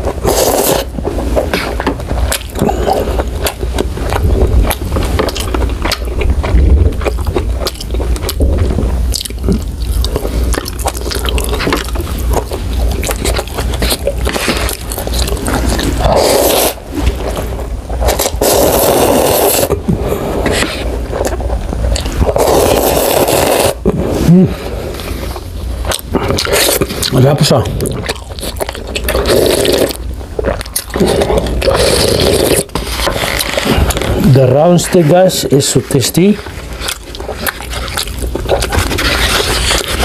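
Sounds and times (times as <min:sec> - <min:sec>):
slurping noodles: 0:00.0 - 0:07.2, 0:07.8 - 0:40.0
chewing with wet mouth clicks: 0:01.6 - 0:18.6, 0:25.8 - 0:32.0, 0:36.8 - 0:40.0.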